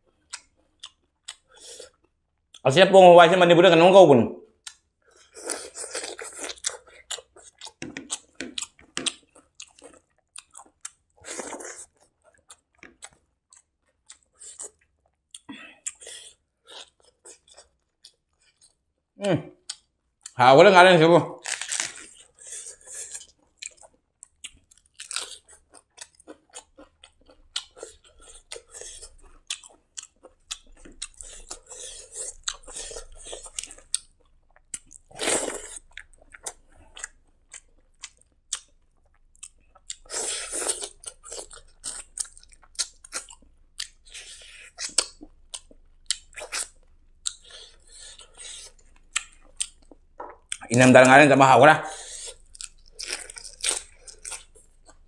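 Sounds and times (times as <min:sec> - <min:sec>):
mouth chewing clicks and smacks: 0:00.2 - 0:02.6, 0:04.6 - 0:16.1, 0:16.7 - 0:18.8, 0:19.6 - 0:20.4, 0:22.0 - 0:50.8, 0:52.0 - 0:55.0
crunchy bites: 0:21.4 - 0:23.9, 0:52.4 - 0:55.0.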